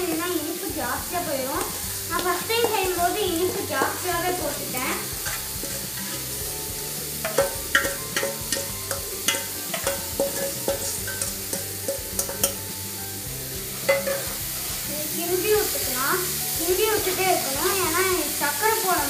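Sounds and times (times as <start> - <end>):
stirring in a pan: 0.0 - 18.8
metal bowl and spoon tapping pan: 1.2 - 6.4, 7.1 - 12.8, 13.8 - 14.6.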